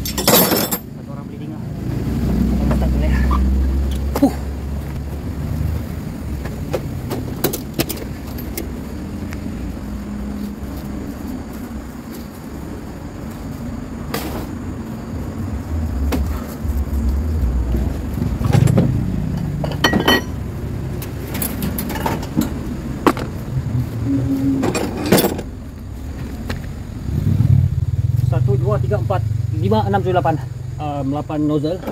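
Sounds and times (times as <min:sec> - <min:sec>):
low engine rumble: 0:00.0 - 0:31.9
metallic tool clinks: 0:19.6 - 0:20.4.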